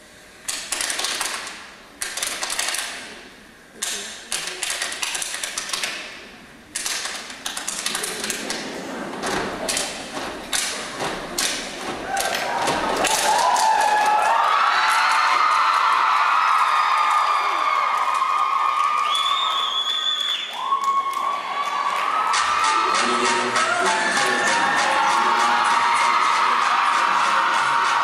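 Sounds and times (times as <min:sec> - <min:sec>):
rhythmic stomps claps and slaps: 0:06.8 - 0:15.0, 0:22.0 - 0:28.0
crowd cheering and screaming: 0:12.0 - 0:28.0.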